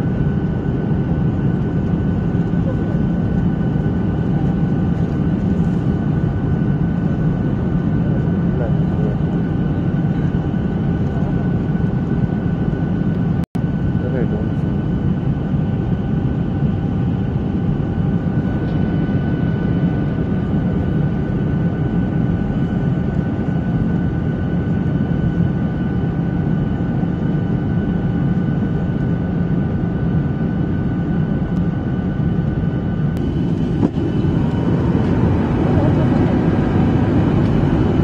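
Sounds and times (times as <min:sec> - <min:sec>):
jet engine and airflow rush: 0:00.0 - 0:38.0.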